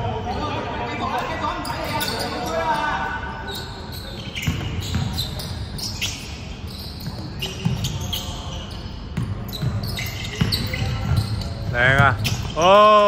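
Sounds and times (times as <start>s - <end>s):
sneaker squeaks: 0.0s - 13.0s.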